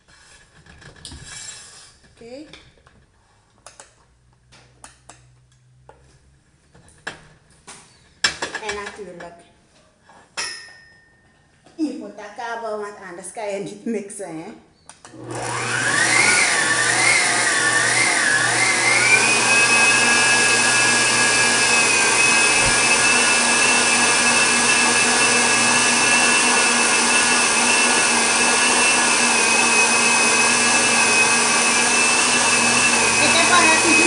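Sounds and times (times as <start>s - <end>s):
electric stand mixer whining: 15.1s - 34.0s.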